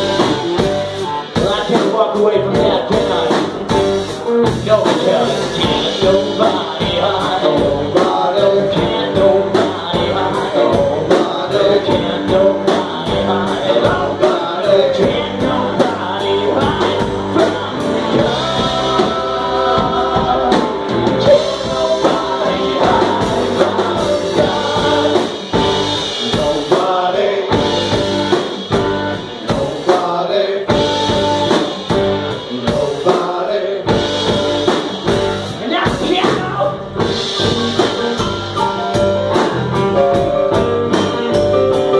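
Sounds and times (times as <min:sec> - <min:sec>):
man singing into a microphone: 0:00.0 - 0:28.4, 0:32.3 - 0:34.3, 0:40.4 - 0:41.9
live rock band playing: 0:00.0 - 0:41.9.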